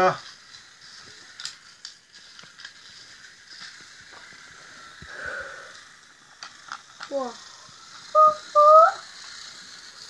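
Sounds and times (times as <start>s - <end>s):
toy train on wooden track: 0.0s - 10.0s.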